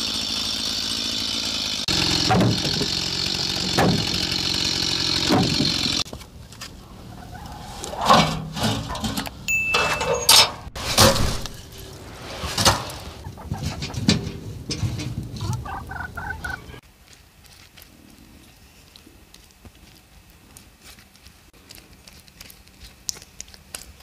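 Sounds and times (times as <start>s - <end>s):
chickens clucking: 6.6s - 9.1s, 12.6s - 16.8s
logs knocking in metal stove: 13.6s - 15.6s.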